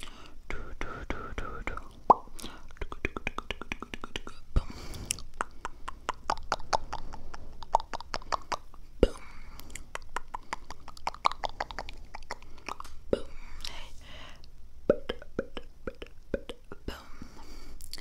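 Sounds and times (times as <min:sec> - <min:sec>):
wet mouth clicks and smacks: 0:01.7 - 0:04.4, 0:05.0 - 0:08.8, 0:09.6 - 0:13.0.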